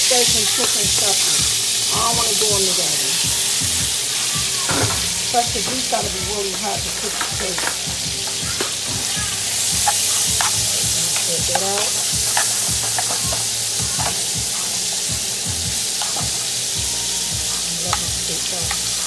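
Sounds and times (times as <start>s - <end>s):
beef sizzling in a skillet: 0.0s - 19.0s
spoon clicking and scraping pan: 4.7s - 8.8s, 9.6s - 16.6s, 17.8s - 19.0s.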